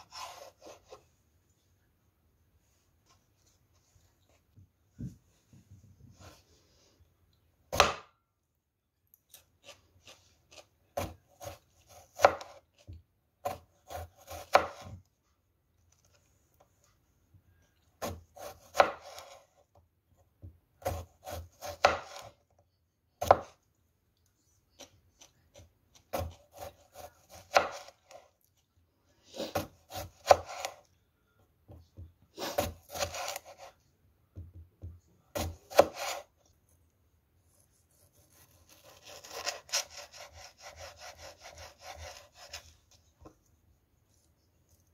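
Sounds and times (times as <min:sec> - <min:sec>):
knife slicing on wooden board: 0:00.0 - 0:01.0, 0:09.3 - 0:12.8, 0:13.4 - 0:15.0, 0:18.0 - 0:19.5, 0:20.8 - 0:22.4, 0:25.9 - 0:28.2, 0:29.3 - 0:30.8, 0:32.4 - 0:33.8, 0:35.3 - 0:36.4, 0:37.9 - 0:43.0.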